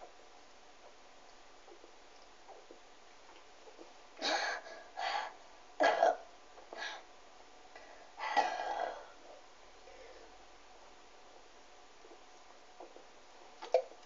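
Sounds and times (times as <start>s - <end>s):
person coughing: 5.8s - 6.2s, 8.2s - 9.1s.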